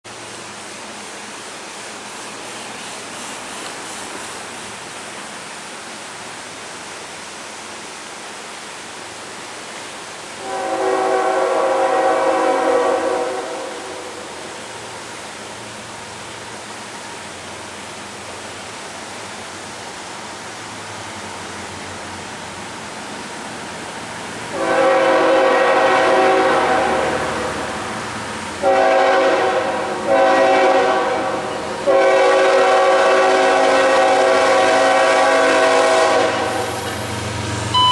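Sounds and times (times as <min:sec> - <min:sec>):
river rushing: 0:00.1 - 0:37.9
locomotive air horn: 0:10.4 - 0:14.7, 0:24.5 - 0:27.8, 0:28.6 - 0:36.9.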